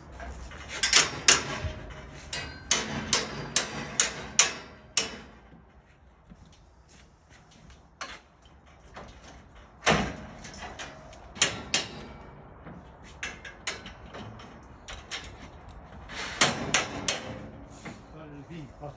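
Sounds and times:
metal scaffold parts clanking: 0:00.0 - 0:06.4, 0:07.4 - 0:18.6.

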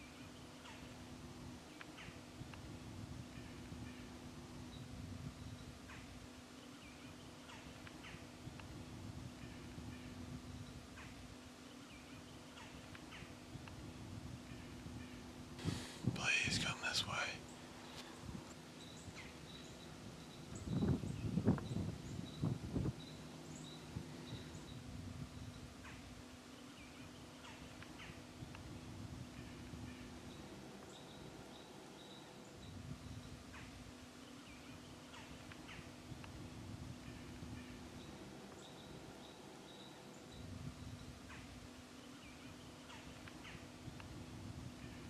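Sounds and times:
faint low hum: 0:00.0 - 0:45.0.

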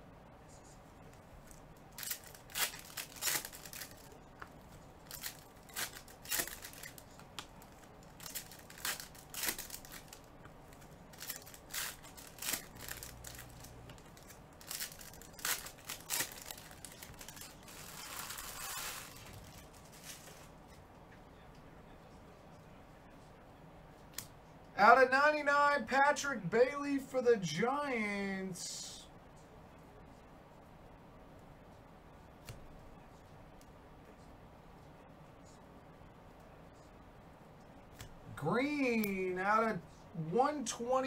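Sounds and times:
foil wrapper crinkling and tearing: 0:01.9 - 0:04.2, 0:05.0 - 0:10.3, 0:11.1 - 0:20.5.

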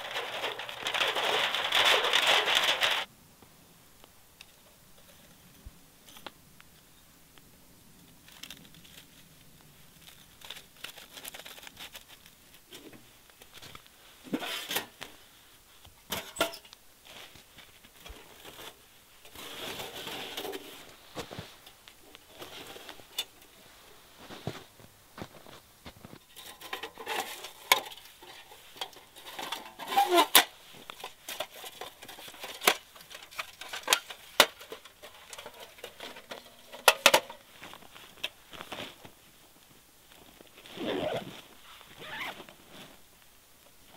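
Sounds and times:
metal panels clacking: 0:00.0 - 0:03.1
rustling: 0:00.0 - 0:03.1, 0:04.0 - 0:43.9.

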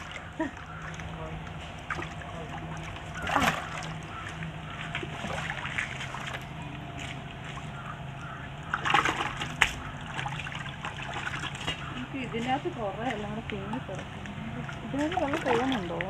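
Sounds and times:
fish splashing in a bucket: 0:00.0 - 0:16.0.

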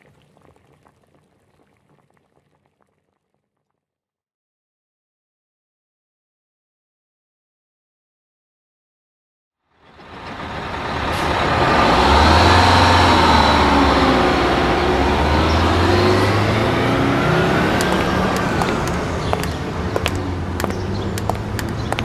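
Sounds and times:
heavy vehicle engine rumble: 0:09.8 - 0:22.0
sharp clicks: 0:17.8 - 0:22.0.

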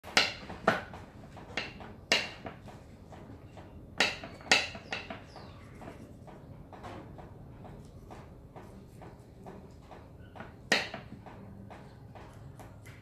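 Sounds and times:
knife chopping on wooden board: 0:00.1 - 0:03.2, 0:07.6 - 0:13.0.

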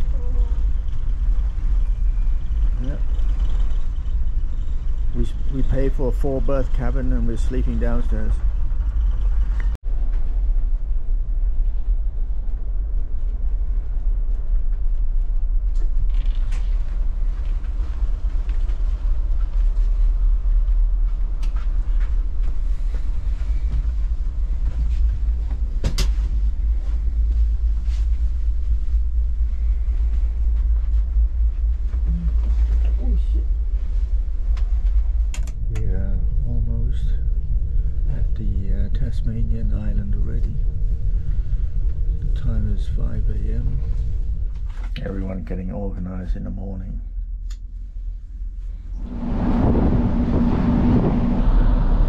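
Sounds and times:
ship engines rumbling: 0:00.0 - 0:09.8, 0:16.9 - 0:52.0
ship creaking and clicking: 0:34.6 - 0:35.8.

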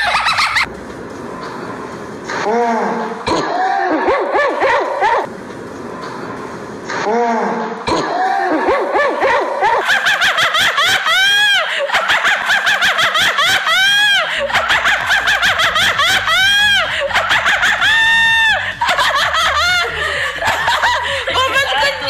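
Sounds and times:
woman laughing hard: 0:00.0 - 0:00.7, 0:03.6 - 0:05.3, 0:08.2 - 0:22.0.

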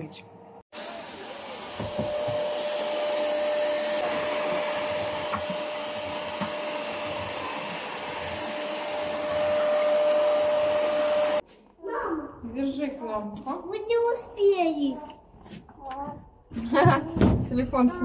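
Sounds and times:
appliance motor whirring: 0:01.0 - 0:11.4.

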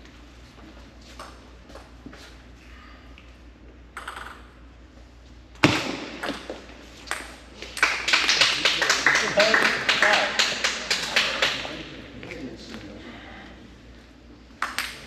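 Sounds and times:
table tennis ball clicking: 0:14.6 - 0:15.0.

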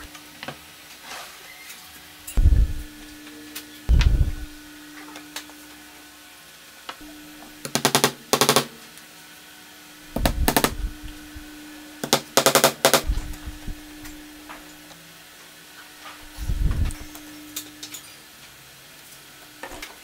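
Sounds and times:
faint steady hum: 0:02.2 - 0:18.1.

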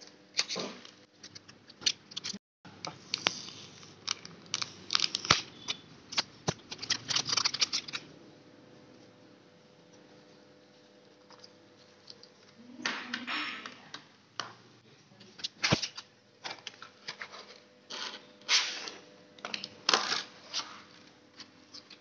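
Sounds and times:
plastic packaging crinkling: 0:03.1 - 0:08.1.

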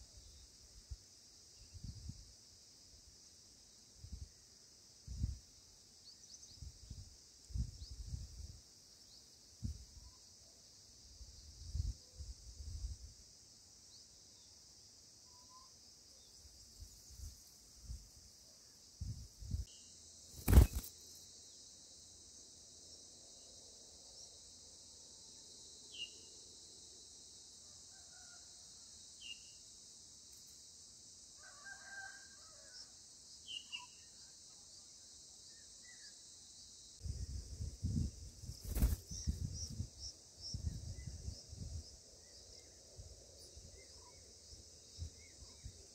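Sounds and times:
high-pitched insect drone: 0:18.8 - 0:27.4, 0:32.8 - 0:45.9
bird chirps: 0:33.5 - 0:34.2.

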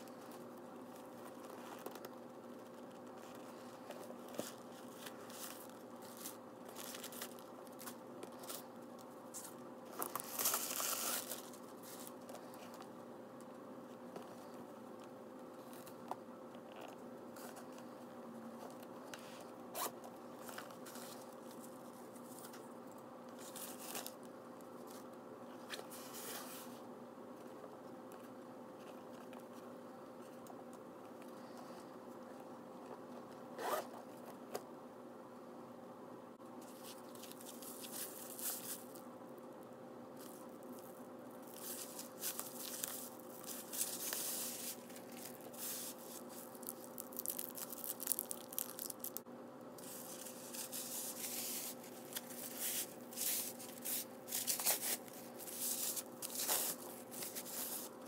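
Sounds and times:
plastic wrap crinkling: 0:03.3 - 0:12.2, 0:36.6 - 0:39.0, 0:40.2 - 0:49.2, 0:49.8 - 0:58.0.

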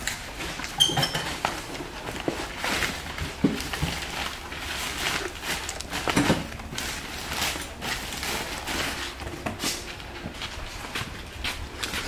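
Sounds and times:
box knocking and rustling: 0:00.6 - 0:06.7.

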